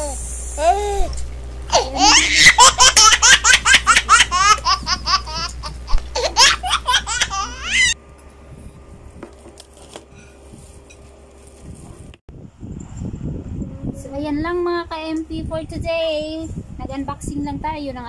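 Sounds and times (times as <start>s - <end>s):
high-pitched laughter: 1.7s - 8.0s.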